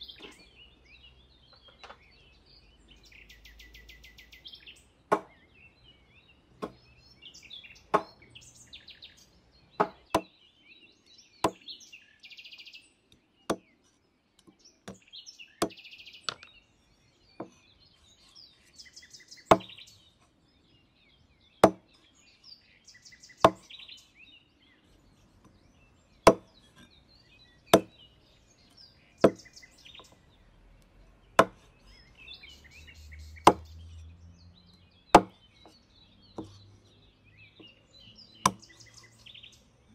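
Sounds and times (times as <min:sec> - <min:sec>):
birds chirping: 0:00.0 - 0:39.9
cleaver chopping on wooden board: 0:05.1 - 0:05.4, 0:06.6 - 0:06.8, 0:07.9 - 0:08.2, 0:09.8 - 0:10.3, 0:11.4 - 0:11.6, 0:13.5 - 0:13.7, 0:19.5 - 0:19.8, 0:21.6 - 0:21.9, 0:23.4 - 0:23.7, 0:26.2 - 0:26.9, 0:27.7 - 0:28.0, 0:29.2 - 0:30.1, 0:31.4 - 0:31.7, 0:33.4 - 0:33.7, 0:35.1 - 0:35.8, 0:36.4 - 0:36.6, 0:38.4 - 0:38.7.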